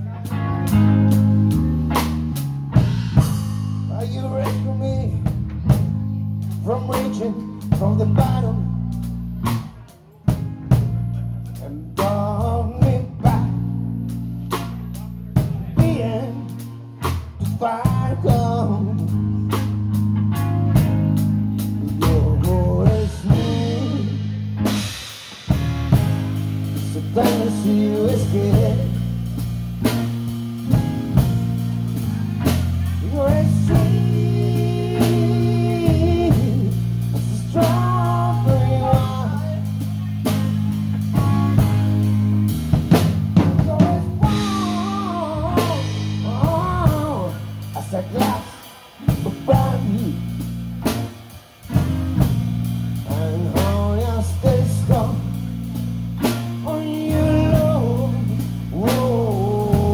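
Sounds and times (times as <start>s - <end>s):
bass line: 0.0s - 59.9s
electric guitar: 0.0s - 59.9s
drum kit hits: 22.9s - 27.8s.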